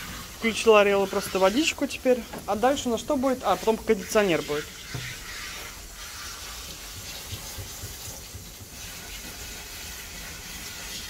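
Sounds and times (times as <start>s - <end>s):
rinse water running: 0.0s - 11.0s
water spraying from nozzle: 0.0s - 11.0s.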